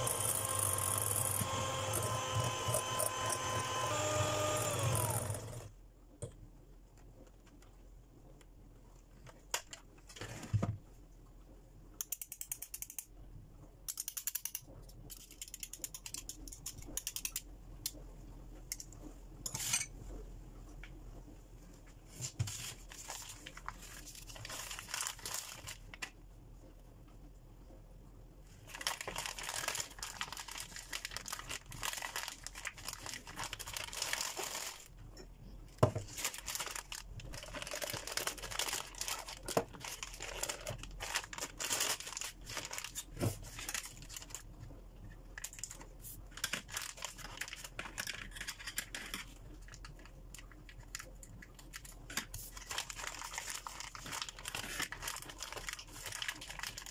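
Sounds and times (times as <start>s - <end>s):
plastic piping bag crinkling: 22.7s - 26.0s, 28.6s - 35.0s, 36.0s - 44.6s, 45.4s - 56.9s.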